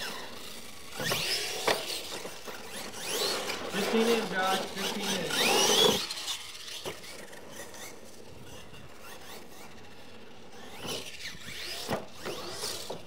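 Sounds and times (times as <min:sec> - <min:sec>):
tyres on dirt: 0:00.0 - 0:09.6
toy truck motor whining: 0:00.0 - 0:13.0.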